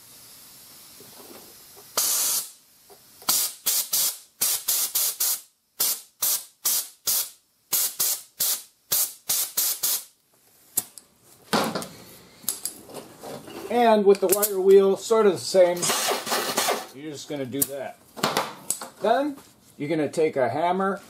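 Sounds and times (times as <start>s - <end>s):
sand blaster hissing blasts: 1.9s - 2.6s, 3.2s - 10.2s.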